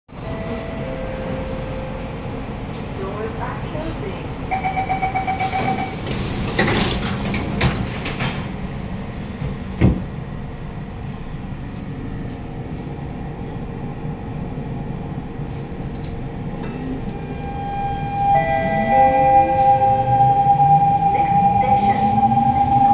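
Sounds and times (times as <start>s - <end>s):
train rumbling: 0.1s - 22.9s
train door closing chime beeping: 0.2s - 2.2s, 4.5s - 6.9s, 17.1s - 22.9s.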